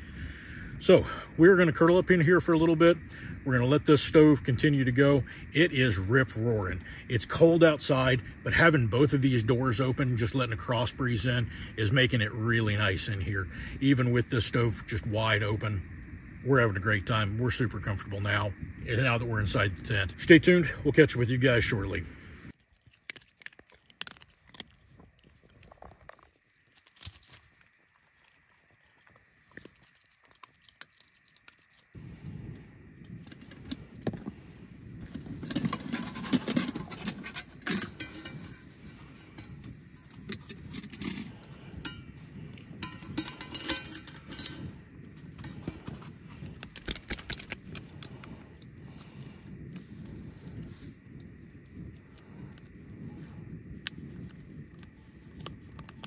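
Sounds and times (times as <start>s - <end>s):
steady low rumble: 0.0s - 22.6s, 24.0s - 56.0s
metal pot and lid clinking: 35.6s - 38.6s, 42.8s - 44.7s.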